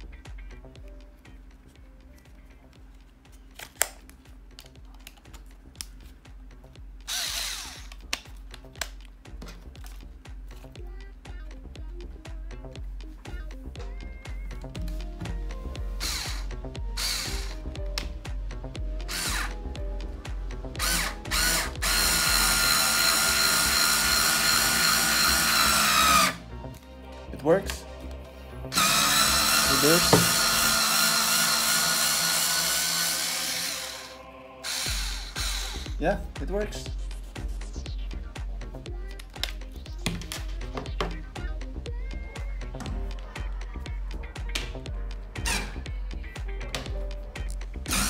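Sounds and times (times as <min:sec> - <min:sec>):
screwdriver motor running: 0:07.0 - 0:08.1, 0:16.0 - 0:17.7, 0:19.0 - 0:19.6, 0:20.8 - 0:26.4, 0:28.7 - 0:36.0.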